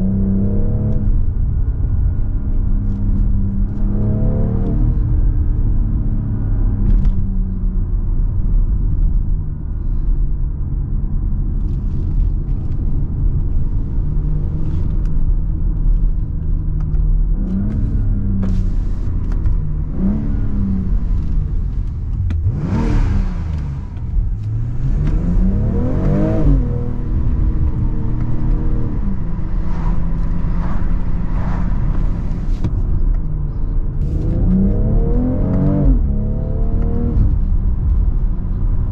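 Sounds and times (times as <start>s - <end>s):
car engine revving: 0.0s - 2.1s, 2.8s - 7.1s, 17.3s - 38.9s.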